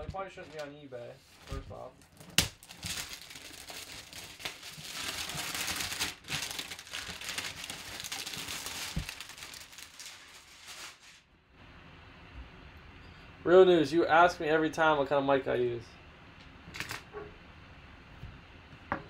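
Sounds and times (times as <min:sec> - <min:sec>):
plastic wrap crinkling and tearing: 0:01.4 - 0:11.2.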